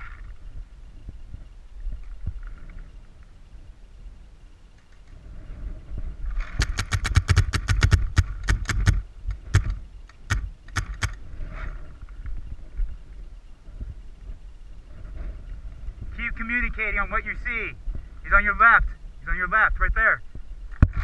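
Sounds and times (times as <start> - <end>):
whir: 4.4 - 12.4
paintball marker shots: 6.6 - 11.2.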